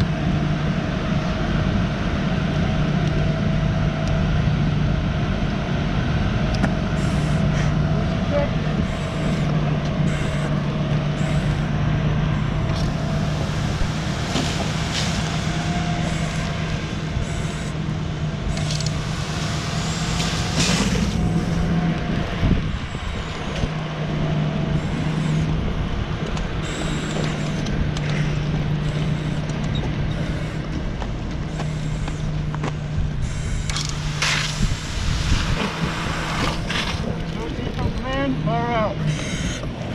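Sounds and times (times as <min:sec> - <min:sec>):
fire engine pump humming: 0:00.0 - 0:39.9
air regulator hissing: 0:07.0 - 0:07.7, 0:08.8 - 0:21.7, 0:24.7 - 0:25.6, 0:26.6 - 0:30.7, 0:33.1 - 0:37.0.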